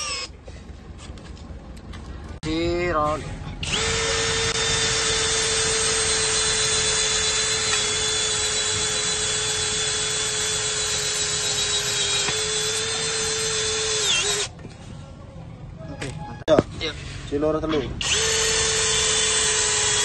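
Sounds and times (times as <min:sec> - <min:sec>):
impact drill motor whine: 0:00.0 - 0:00.4, 0:03.6 - 0:14.5, 0:18.0 - 0:20.0.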